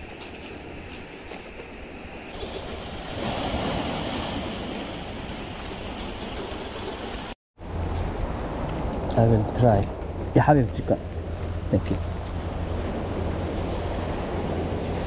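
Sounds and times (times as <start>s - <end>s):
sea waves washing on shore: 2.2s - 7.4s.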